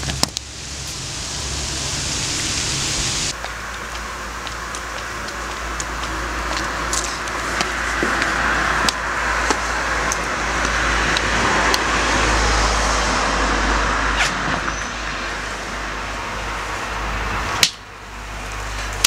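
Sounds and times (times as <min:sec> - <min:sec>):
footsteps: 0:00.0 - 0:11.9
car passing: 0:00.0 - 0:19.0.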